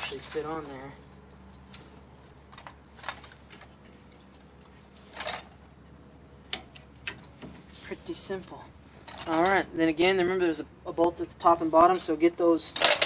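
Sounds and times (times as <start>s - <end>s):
metal clatter: 0.0s - 4.2s, 5.0s - 5.6s, 9.0s - 9.6s, 12.7s - 13.0s.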